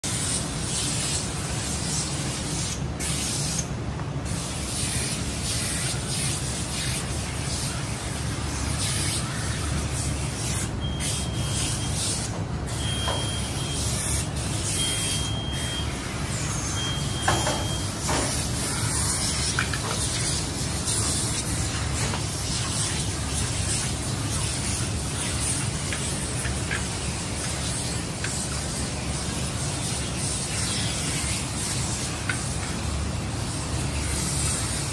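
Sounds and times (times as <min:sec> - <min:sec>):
short high beeps: 0:12.7 - 0:13.9, 0:14.8 - 0:15.9, 0:16.8 - 0:18.0.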